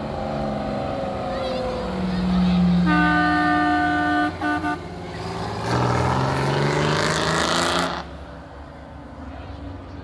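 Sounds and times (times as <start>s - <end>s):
diesel engine revving: 0.0s - 8.7s
truck air horn blasts: 2.8s - 5.0s.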